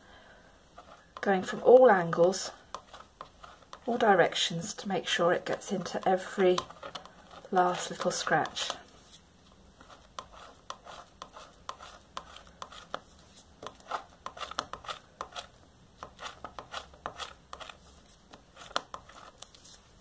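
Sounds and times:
stiff card scraping a plate: 0:13.6 - 0:19.5.

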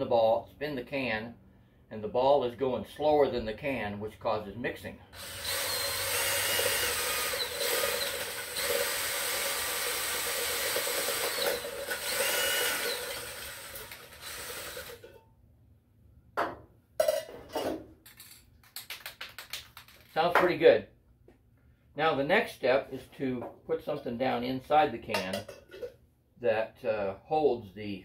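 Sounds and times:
cordless drill whining: 0:05.2 - 0:15.0.

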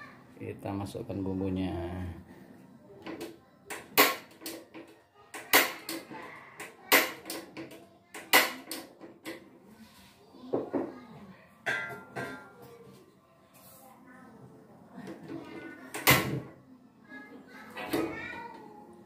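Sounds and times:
utensils clinking against cookware: 0:11.6 - 0:12.6.

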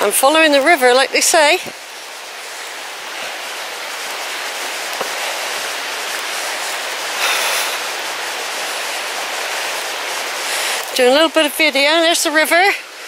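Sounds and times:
river rushing over boulders: 0:00.0 - 0:13.0.

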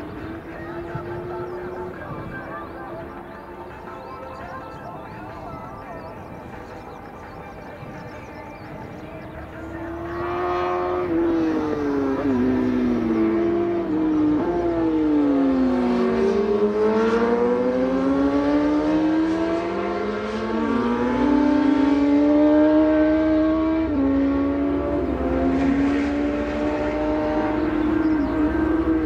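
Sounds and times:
racing car engine accelerating: 0:09.4 - 0:29.0.

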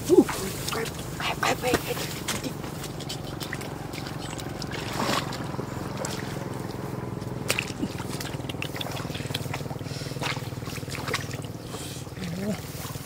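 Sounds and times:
steady low hum: 0:00.0 - 0:13.0
short sharp splashes: 0:00.3 - 0:13.0
hands splashing in water: 0:02.2 - 0:13.0.

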